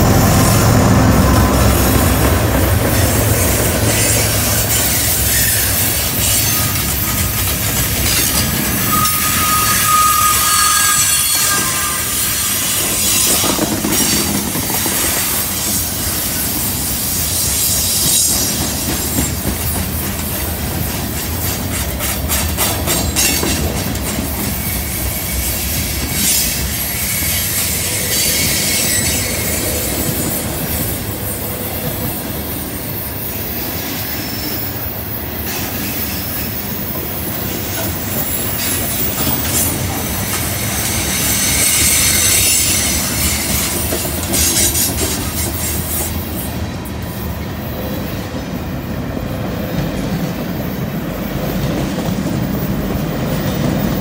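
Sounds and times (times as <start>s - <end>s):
wheels grinding and squealing: 1.2s - 16.4s, 24.5s - 30.8s, 33.2s - 46.4s
wheels clicking on rail joints: 1.4s - 32.6s, 33.2s - 48.5s.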